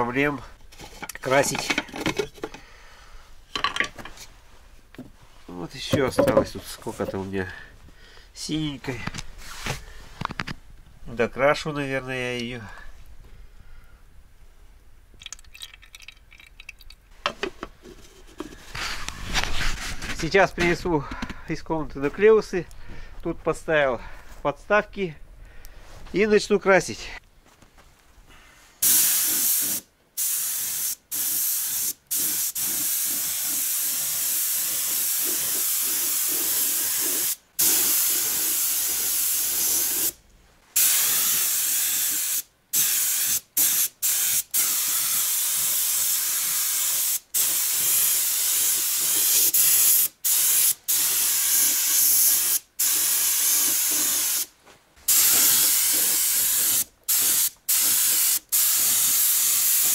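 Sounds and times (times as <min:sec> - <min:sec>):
paint spray gun hissing: 0:28.8 - 0:40.2, 0:40.8 - 0:54.5, 0:55.1 - 0:59.9.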